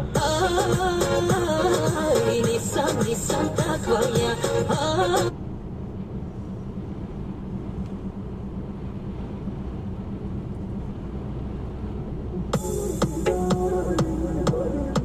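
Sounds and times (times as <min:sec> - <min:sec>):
music: 0:00.0 - 0:05.3, 0:12.5 - 0:15.0
vehicle road and engine rumble: 0:00.0 - 0:15.0.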